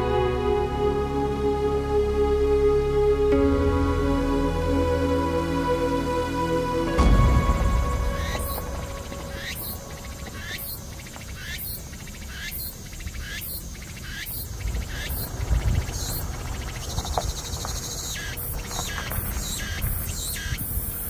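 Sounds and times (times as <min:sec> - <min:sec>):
wind noise rumble: 0:06.9 - 0:21.0
insect buzzy chirps: 0:07.6 - 0:21.0.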